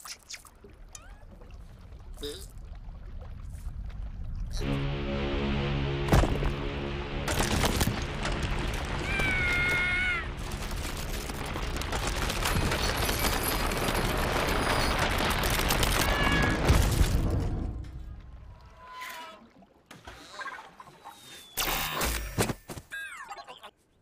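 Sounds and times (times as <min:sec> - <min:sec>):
ship hull crunching through ice: 0:07.2 - 0:17.8.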